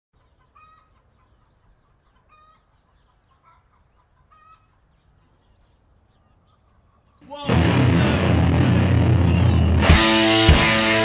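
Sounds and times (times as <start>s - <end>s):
hens clucking: 0.2s - 5.6s.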